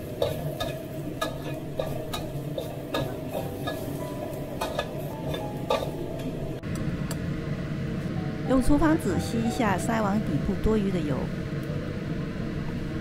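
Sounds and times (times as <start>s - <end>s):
spatula scraping metal wok: 0.0s - 4.0s, 4.6s - 6.0s
frying sizzle: 0.0s - 6.6s.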